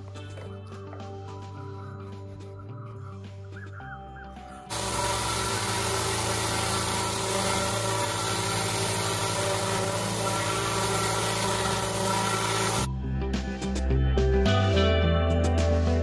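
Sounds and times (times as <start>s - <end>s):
pressure washer motor hum: 4.7s - 12.9s
pressure washer spraying water: 4.7s - 12.9s.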